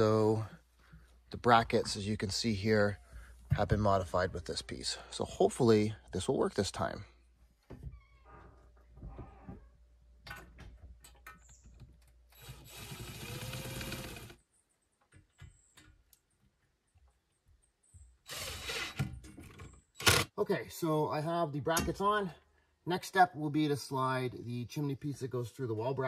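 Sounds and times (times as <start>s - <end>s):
cordless drill running: 12.4s - 14.4s, 18.3s - 19.0s.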